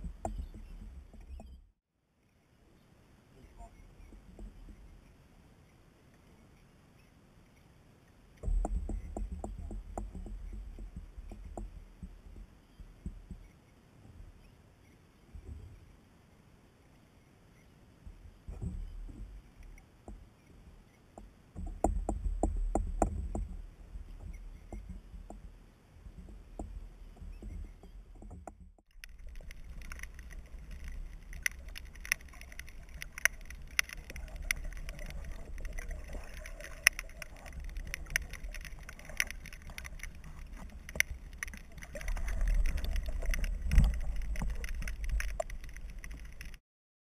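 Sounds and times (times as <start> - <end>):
sharp clicks and crackle: 26.1 - 46.6
water sloshing and splashing: 28.9 - 46.6
muffled underwater rush: 29.0 - 46.6.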